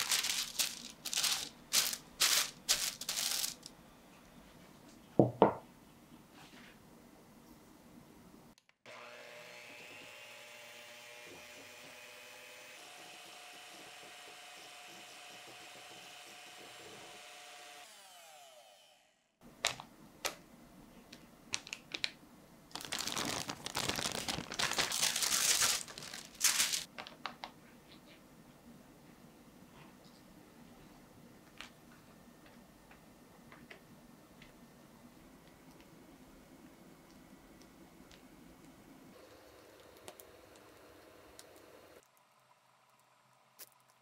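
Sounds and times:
baking paper crinkling: 0.0s - 3.7s, 22.7s - 27.4s
electric hand mixer whining: 8.9s - 19.0s.

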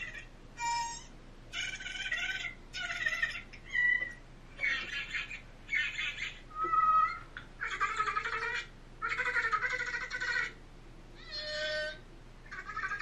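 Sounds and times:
rasping animal calls: 11.2s - 13.0s.

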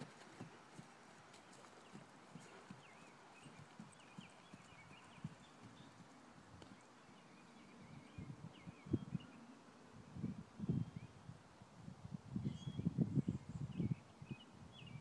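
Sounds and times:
horse hoofbeats on grass: 0.0s - 6.8s.

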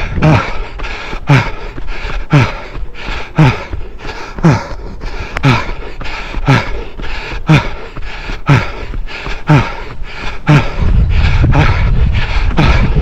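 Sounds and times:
runner breathing heavily: 0.0s - 13.0s
low rumble: 10.4s - 13.0s.

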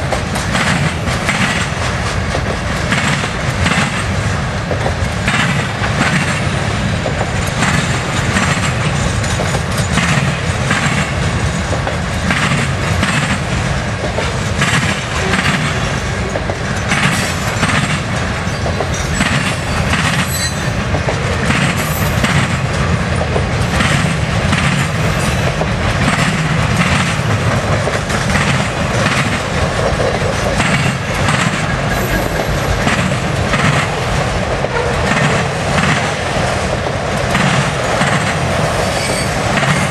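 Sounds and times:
freight train rumbling past: 0.0s - 39.9s
wheels clacking over rail joints: 0.0s - 39.9s
high wheel squeal: 18.5s - 20.8s, 38.8s - 39.4s.

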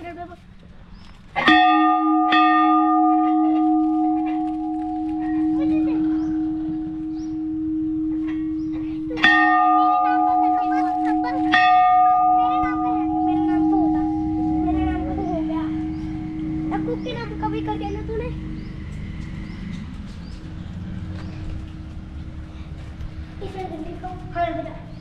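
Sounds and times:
large temple bell ringing: 1.4s - 19.9s.

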